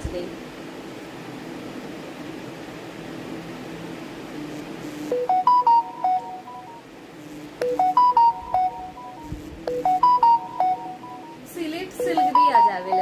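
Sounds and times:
phone ringtone tune: 5.1s - 6.8s, 7.6s - 11.4s, 12.0s - 13.0s.

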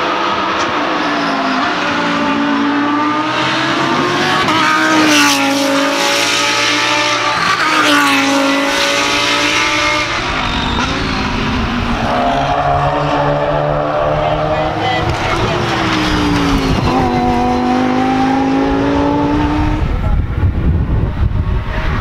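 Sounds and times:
race car engine revving: 0.0s - 22.0s.

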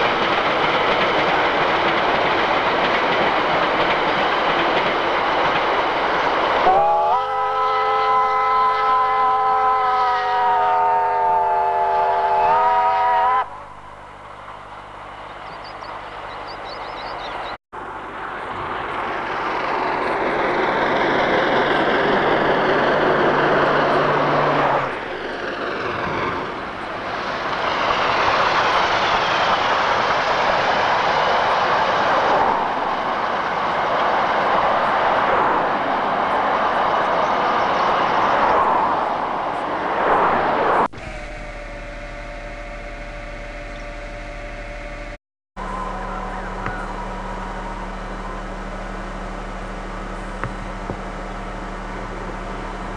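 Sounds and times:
steam train rushing past: 0.0s - 42.6s
steam locomotive whistle: 6.6s - 14.1s, 41.0s - 49.3s.

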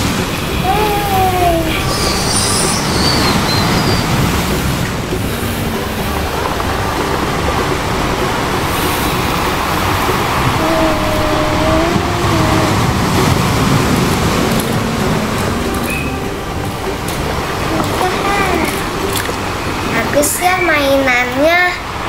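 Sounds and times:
loud steady rumbling: 0.0s - 22.0s
brief wavering tone: 8.7s - 19.8s.

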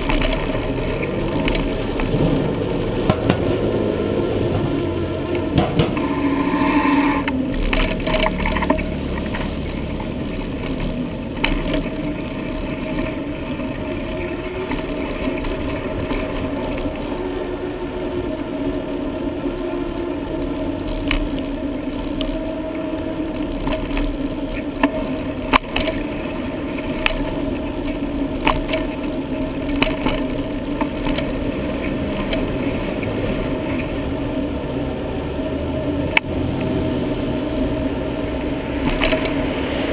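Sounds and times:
sharp clicks and knocks: 0.0s - 3.8s, 4.5s - 6.2s, 38.8s - 39.5s
wind and tyres rumbling: 0.0s - 39.9s.

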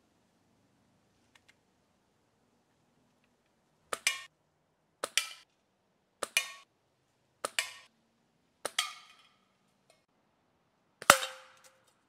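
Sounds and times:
air rifle shots: 11.0s - 11.6s.

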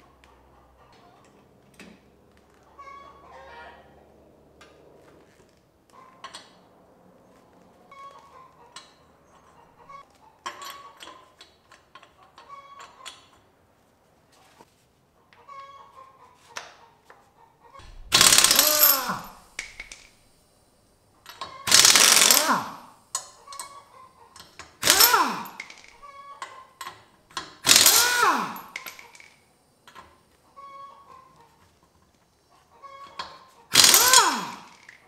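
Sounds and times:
impact wrench whining: 17.8s - 20.3s, 21.6s - 22.9s, 24.7s - 26.0s, 27.6s - 29.2s, 33.7s - 35.0s.

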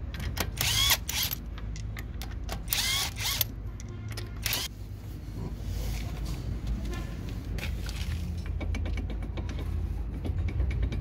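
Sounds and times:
impact wrench motor whine: 0.6s - 1.4s, 2.7s - 3.5s.

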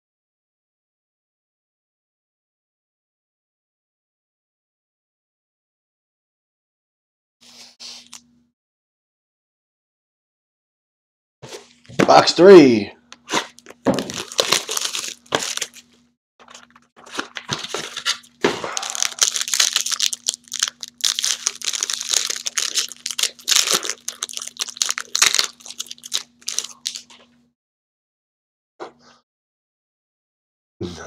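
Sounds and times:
plastic wrapper tearing and crinkling: 13.3s - 27.2s.

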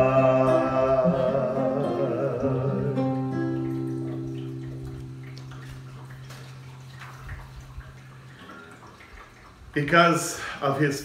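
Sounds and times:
acoustic guitar chord ringing: 0.0s - 6.0s.

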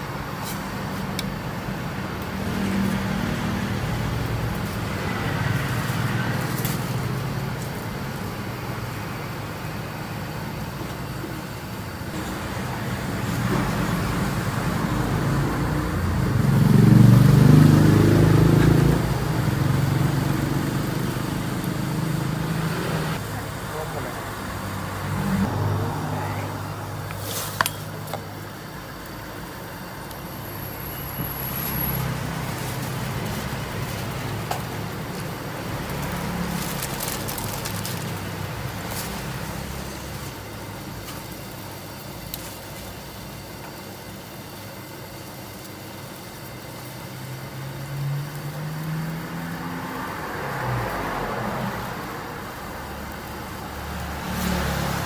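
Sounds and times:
traffic engines passing: 0.0s - 43.8s, 45.4s - 55.0s
engine speeding up: 12.2s - 27.2s, 30.8s - 40.4s, 47.2s - 52.5s, 53.4s - 55.0s.

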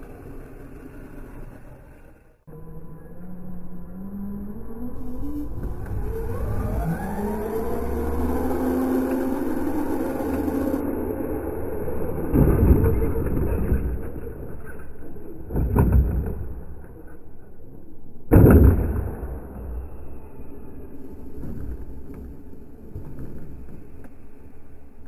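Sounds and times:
electric motor whining: 2.5s - 12.3s
toy truck crashing thuds: 15.5s - 16.8s, 18.3s - 19.8s.

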